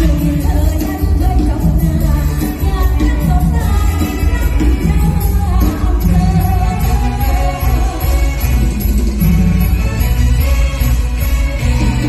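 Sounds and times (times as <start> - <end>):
woman singing: 0.0 - 8.8
live band playing through pa: 0.0 - 12.0.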